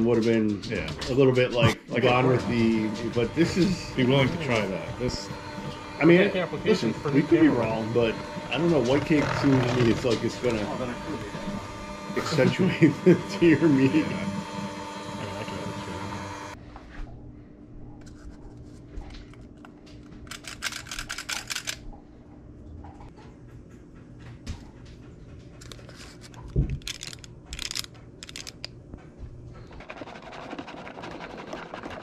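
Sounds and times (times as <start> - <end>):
electric hand mixer whirring: 1.6 - 16.6
batter pouring scrapes and clicks: 29.6 - 32.0.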